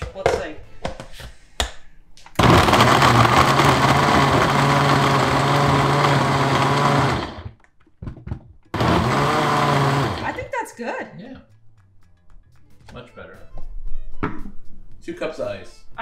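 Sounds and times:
blender crushing ice: 2.4 - 7.6, 8.7 - 10.4.

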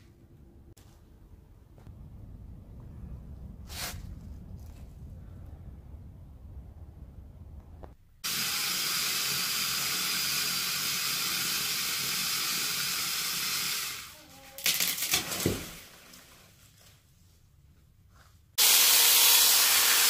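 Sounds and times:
electric chainsaw cutting: 8.2 - 14.1, 18.6 - 20.0.

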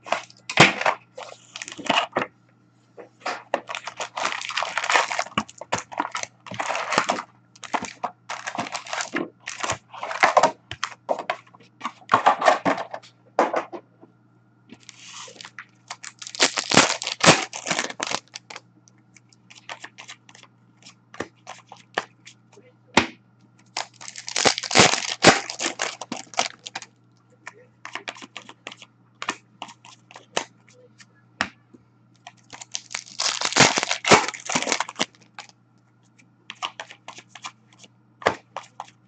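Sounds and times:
foil packs crinkling and tearing: 0.0 - 2.1, 3.6 - 10.5, 14.8 - 18.6, 23.6 - 26.9, 32.2 - 35.5.

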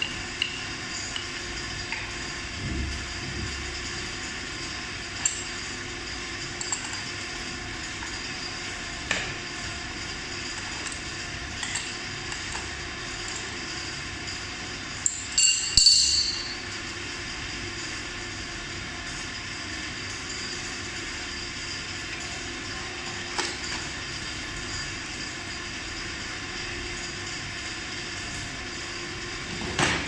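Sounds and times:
steady background hum: 0.0 - 30.0
metal wrench clinking: 15.0 - 16.6.

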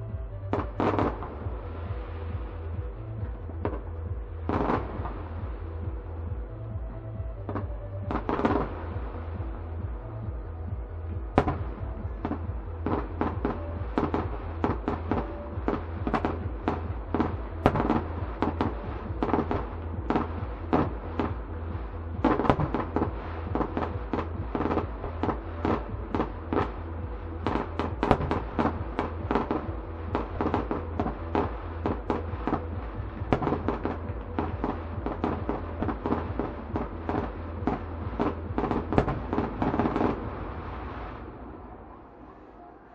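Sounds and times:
fireworks bangs and crackling: 0.5 - 6.5, 7.2 - 10.5, 11.1 - 41.8.

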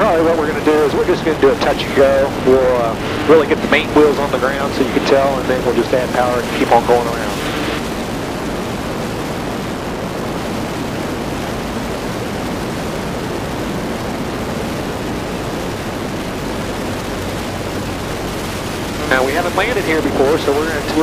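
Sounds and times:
light aircraft engine and airflow: 0.0 - 21.0.

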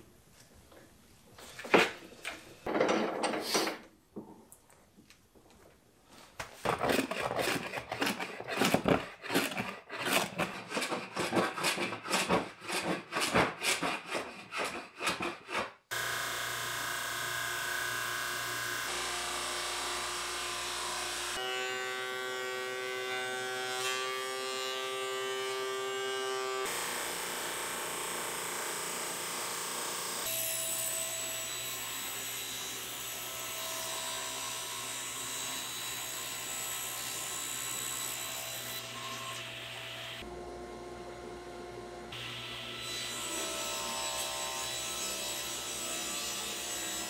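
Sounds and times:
table saw cutting: 6.7 - 40.3, 42.1 - 47.0
planing machine cutting board: 42.1 - 47.0.

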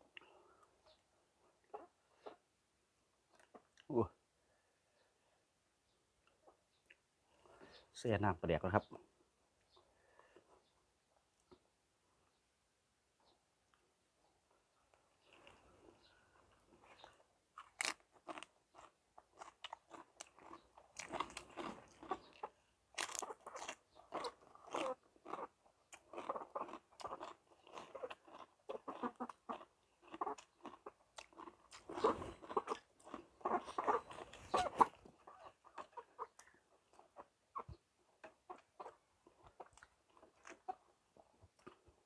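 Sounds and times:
man chewing and lip smacking: 3.3 - 3.9, 6.2 - 7.1, 14.9 - 42.0.

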